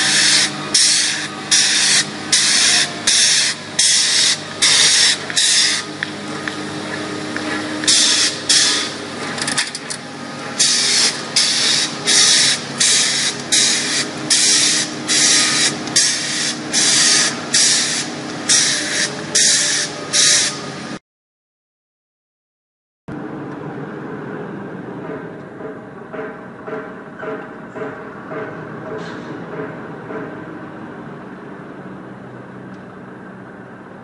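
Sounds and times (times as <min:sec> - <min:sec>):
spray gun hissing: 0:00.0 - 0:06.0, 0:07.8 - 0:09.0, 0:10.6 - 0:20.8
steady low hum: 0:00.0 - 0:21.0.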